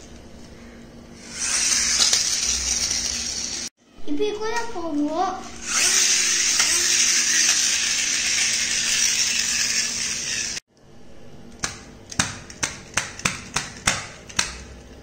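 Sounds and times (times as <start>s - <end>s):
toy truck wheels whirring: 1.2s - 3.7s, 5.6s - 10.6s.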